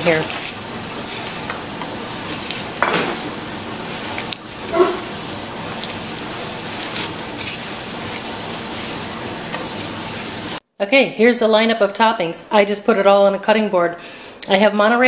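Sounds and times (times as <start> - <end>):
wrapper crinkling: 0.0 - 10.0
gas burner hissing: 0.0 - 10.6.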